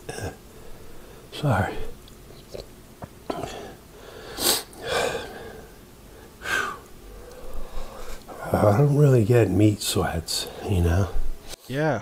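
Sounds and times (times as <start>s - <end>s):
man breathing heavily: 0.5s - 1.3s, 3.3s - 8.4s.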